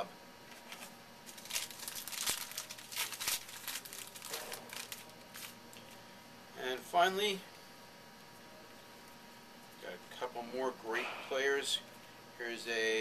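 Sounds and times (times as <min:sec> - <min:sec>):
wrapper crinkling: 0:00.5 - 0:06.0.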